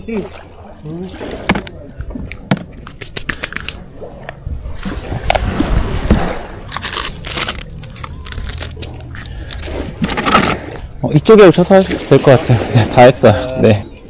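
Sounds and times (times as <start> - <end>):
plastic bag rustling: 6.7 - 10.6.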